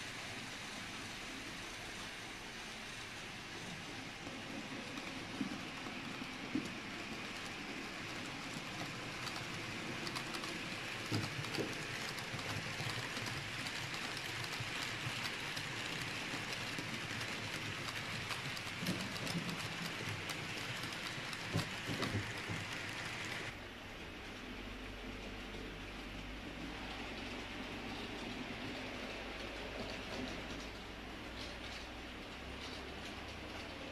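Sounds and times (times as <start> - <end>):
model train rolling on track: 0.0 - 33.9
wheel clicks: 4.2 - 23.5.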